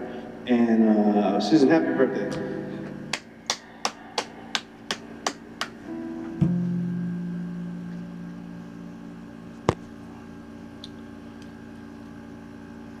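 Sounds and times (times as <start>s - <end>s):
electric guitar chord ringing: 5.7s - 11.2s.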